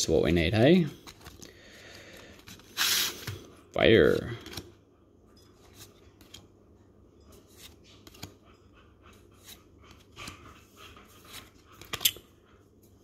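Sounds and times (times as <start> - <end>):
trading cards rustling and clicking: 0.9 - 4.7, 7.4 - 8.4, 9.3 - 10.4, 11.2 - 12.2.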